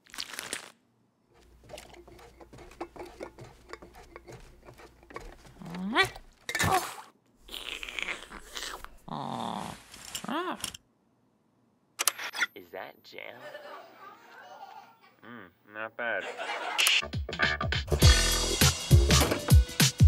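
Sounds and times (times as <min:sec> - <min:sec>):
cartoon character vocal noises: 0:05.7 - 0:10.7.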